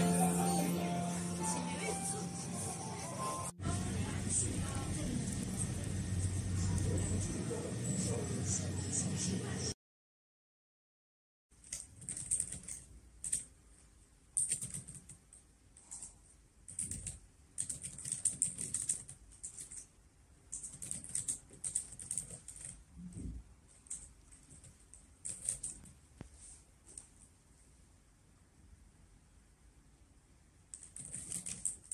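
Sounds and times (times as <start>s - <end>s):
typing on laptop keyboard: 11.6s - 13.5s, 14.4s - 19.9s, 20.5s - 26.0s, 30.7s - 31.9s.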